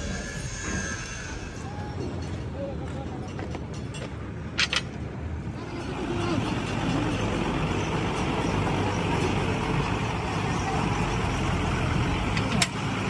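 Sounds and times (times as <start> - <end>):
vehicle engine running: 5.6 - 13.0.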